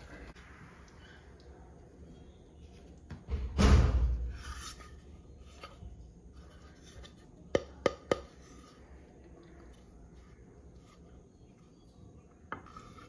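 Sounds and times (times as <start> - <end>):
loud scrape: 4.1 - 5.1.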